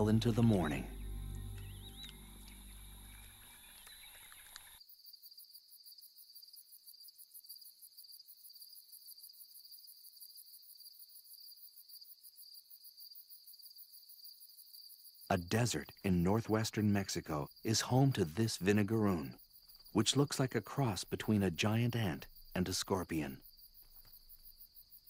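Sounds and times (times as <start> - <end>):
low music score: 0.0 - 3.9
crickets trilling: 0.2 - 25.0.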